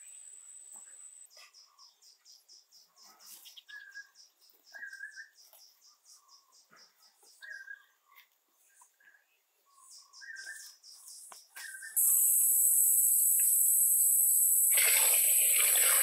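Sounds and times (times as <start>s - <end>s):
faint birdsong: 0.0s - 16.0s
insects chirping: 12.0s - 16.0s.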